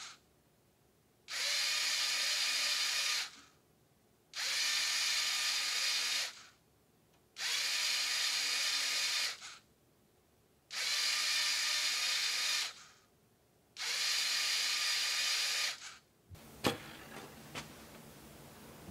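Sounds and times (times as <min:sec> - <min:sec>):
small electric motor whirring: 0:01.3 - 0:03.5, 0:04.4 - 0:06.6, 0:07.4 - 0:09.6, 0:10.7 - 0:13.0, 0:13.8 - 0:16.0.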